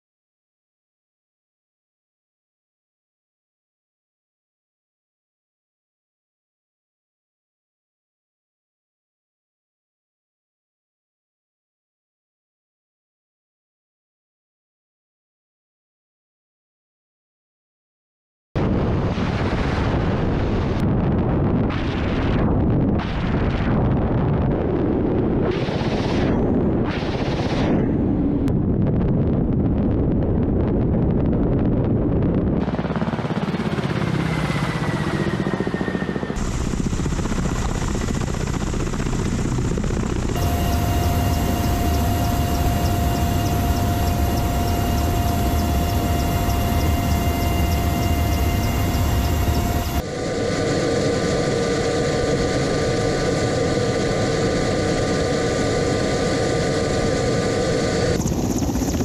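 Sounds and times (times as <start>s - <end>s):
helicopter rotors: 21.6s - 59.0s
high turbine whine: 24.3s - 29.8s, 32.6s - 59.0s.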